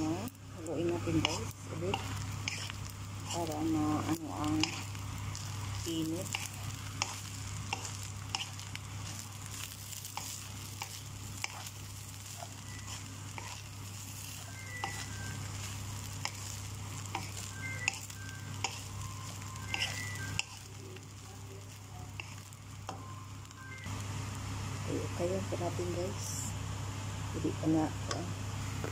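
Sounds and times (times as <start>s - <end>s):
light sizzle: 0.0s - 28.9s
steady low hum: 0.0s - 28.9s
spatula scraping a pan: 1.2s - 20.8s, 21.6s - 22.5s.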